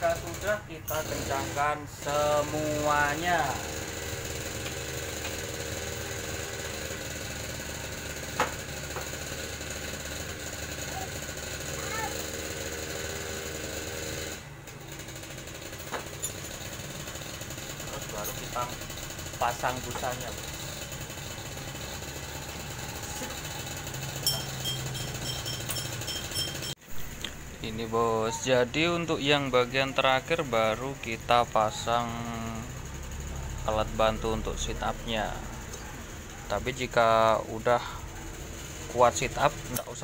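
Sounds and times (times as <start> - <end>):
motorcycle engine running: 0.0 - 27.9, 29.6 - 40.0.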